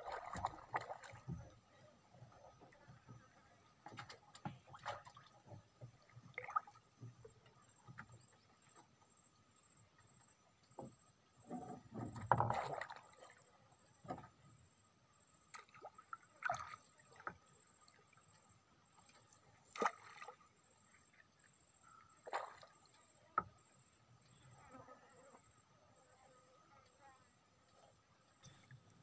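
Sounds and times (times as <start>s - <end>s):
water sloshing: 0.0s - 8.7s, 10.8s - 14.4s, 18.9s - 20.9s.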